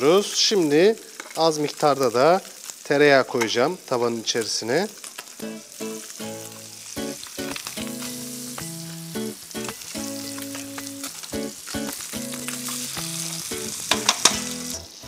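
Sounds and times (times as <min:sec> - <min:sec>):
fish sizzling in a pan: 0:00.0 - 0:15.0
tongs clicking against pan: 0:13.8 - 0:14.5.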